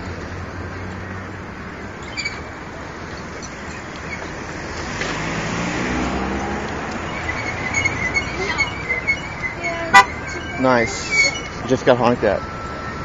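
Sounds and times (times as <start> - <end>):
street traffic: 0.0 - 13.0
car driving past: 3.7 - 12.7.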